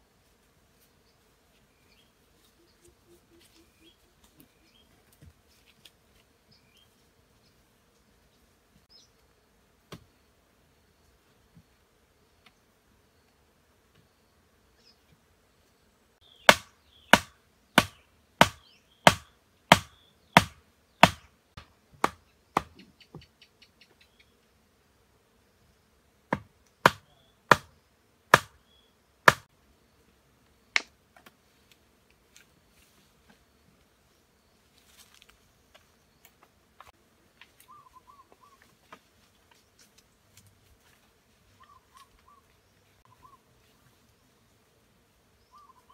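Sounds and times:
sharp blows on bamboo: 16.4s - 22.9s, 26.3s - 28.6s, 29.2s - 29.5s
faint bird chirps: 22.4s - 24.5s, 37.6s - 38.7s, 41.6s - 43.5s, 45.4s - 45.9s
warbling bird call: 37.7s - 38.6s, 43.0s - 43.4s, 45.5s - 45.9s.

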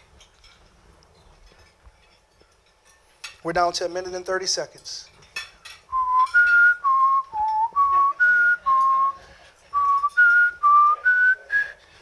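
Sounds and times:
man whistling a tune: 5.9s - 11.9s.

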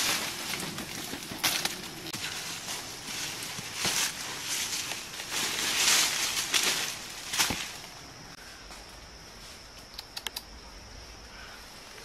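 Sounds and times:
branch cracking: 0.0s - 8.0s
dry leaf litter crackling: 0.0s - 8.0s
leaves and branches rustling: 0.0s - 10.0s.

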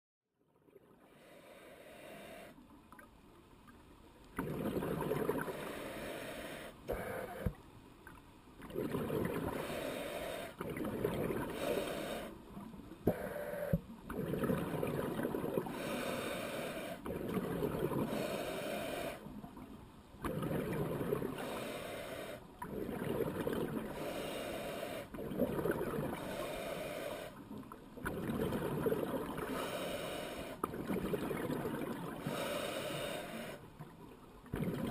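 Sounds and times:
exhaled bubbles underwater: 4.3s - 6.1s, 8.6s - 21.8s, 22.5s - 34.9s.

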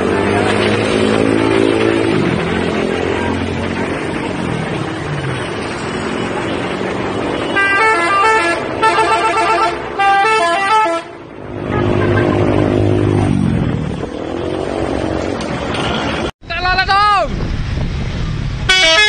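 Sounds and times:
street traffic: 0.0s - 19.0s
multi-tone horn melody: 7.4s - 12.6s, 18.7s - 19.0s.

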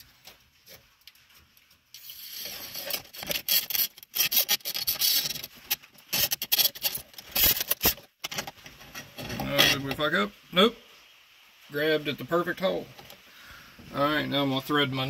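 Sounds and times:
cable scraping through hole: 2.0s - 10.0s.

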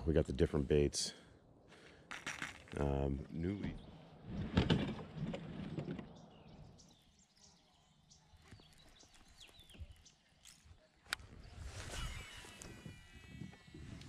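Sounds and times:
faint bird chirps: 5.1s - 14.0s.

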